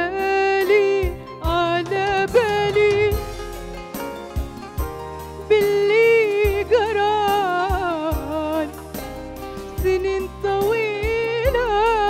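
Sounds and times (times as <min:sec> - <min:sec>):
woman singing with vibrato: 0:00.0 - 0:03.5, 0:05.4 - 0:08.8, 0:09.8 - 0:12.0
hand drum beats: 0:01.0 - 0:10.3
small band playing: 0:01.0 - 0:11.4.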